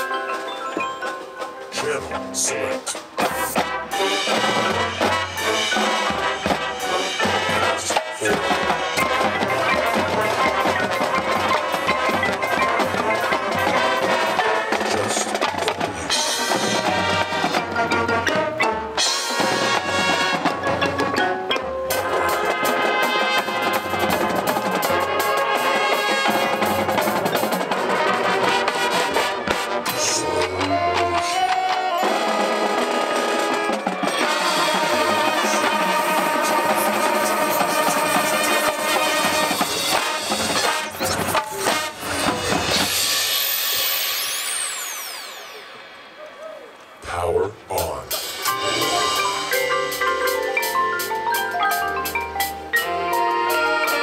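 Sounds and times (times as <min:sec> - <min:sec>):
marching band playing: 0:00.0 - 0:54.0.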